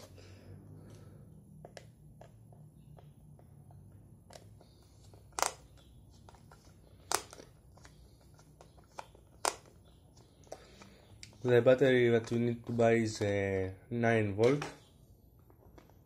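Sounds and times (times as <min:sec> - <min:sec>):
sharp plastic clicks: 0:05.3 - 0:05.9.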